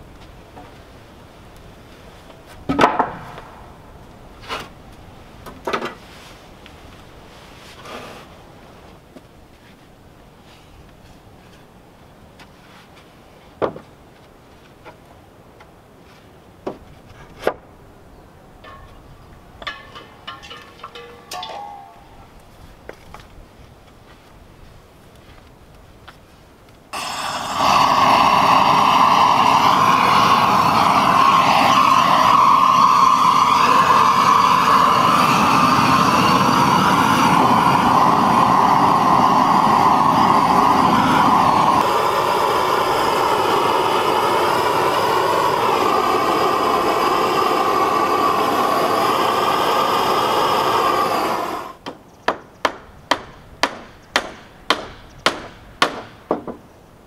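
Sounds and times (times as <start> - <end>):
paint sprayer motor whining: 27.0 - 51.8
hammering on wood: 51.8 - 56.6.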